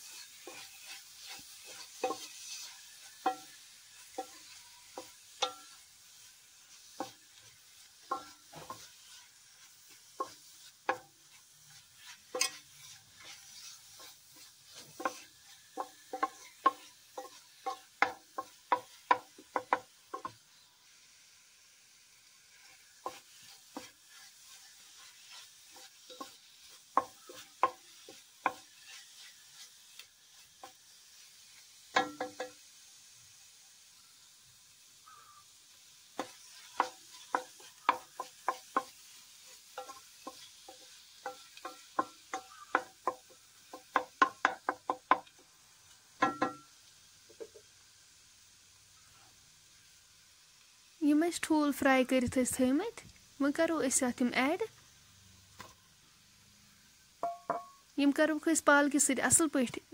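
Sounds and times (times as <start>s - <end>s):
faint frying sizzle: 0.0s - 59.9s
spoon scraping metal pot: 12.0s - 18.1s.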